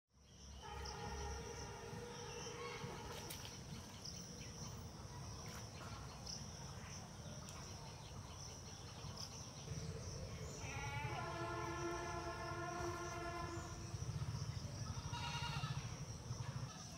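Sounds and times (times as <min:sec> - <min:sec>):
insects chorus: 0:00.2 - 0:16.9.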